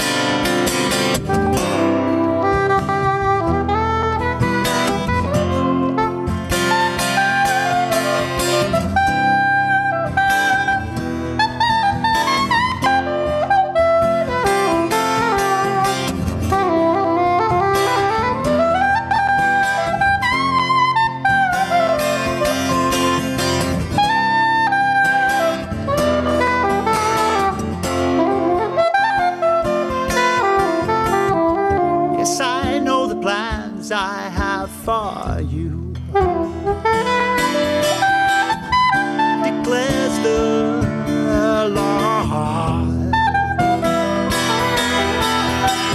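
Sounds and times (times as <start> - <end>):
soprano saxophone playing jazz: 0.0 - 34.6, 35.4 - 45.9
strummed acoustic guitar: 0.0 - 45.9.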